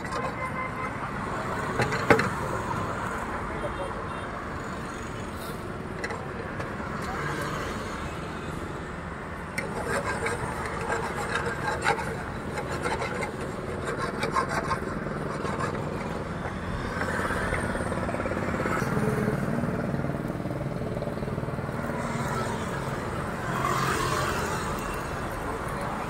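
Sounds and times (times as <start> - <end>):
street noise: 0.0 - 26.0
traffic engine hum: 0.0 - 26.0
spatula scraping a frying pan: 9.5 - 17.8
voices: 21.8 - 26.0.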